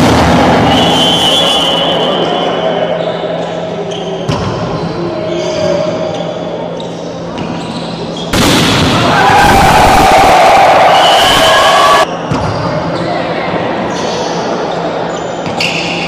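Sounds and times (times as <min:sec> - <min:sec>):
crowd and players shouting: 0:08.9 - 0:12.1.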